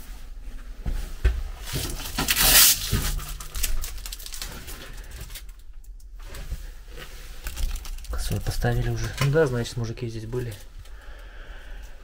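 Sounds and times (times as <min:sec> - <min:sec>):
plastic packet crinkling: 0:01.8 - 0:05.6, 0:07.3 - 0:10.8.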